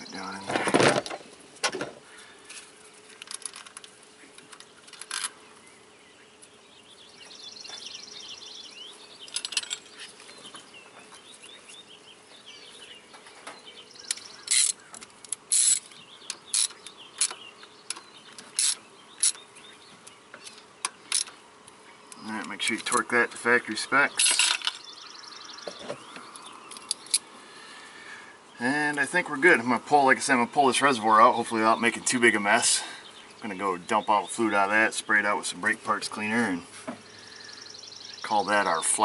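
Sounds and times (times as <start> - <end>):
ratchet clicking on metal: 14.5 - 19.4.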